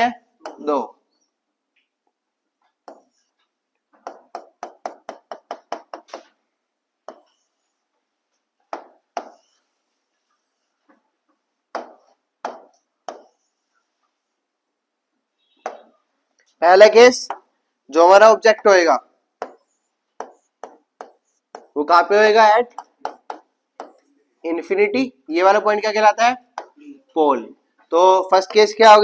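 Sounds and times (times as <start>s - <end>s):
pen tapping on screen: 2.8s - 3.3s, 4.0s - 6.4s, 7.0s - 7.5s, 8.7s - 9.6s, 11.7s - 13.5s, 15.6s - 15.9s, 19.4s - 21.8s, 22.7s - 24.1s, 26.5s - 26.8s, 28.4s - 28.9s.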